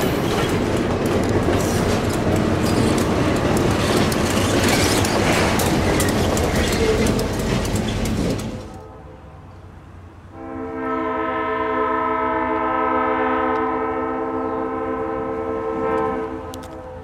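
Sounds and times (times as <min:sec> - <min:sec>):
locomotive air horn chord: 0:08.7 - 0:17.0.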